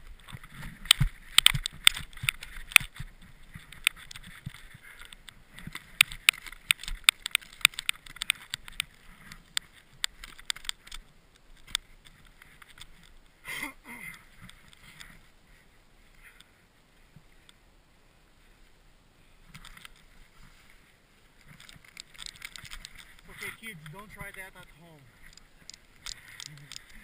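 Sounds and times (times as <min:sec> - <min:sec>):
gloves and snow rustling: 0:11.0 - 0:27.0
binding ratchet straps clicking: 0:21.5 - 0:23.9, 0:25.2 - 0:27.0.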